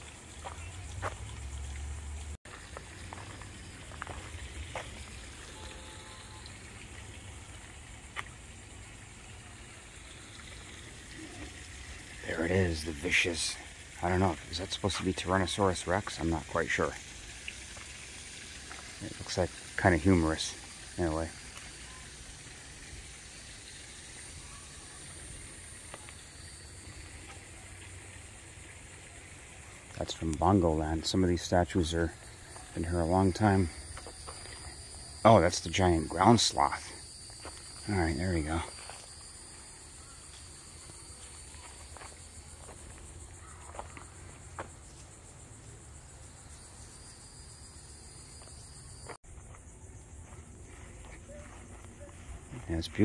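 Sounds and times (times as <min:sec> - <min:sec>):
high-pitched insect chorus: 0:00.0 - 0:53.0
steady hiss: 0:00.0 - 0:53.0
faint high tone: 0:05.4 - 0:06.6
soft footsteps: 0:48.4 - 0:53.0.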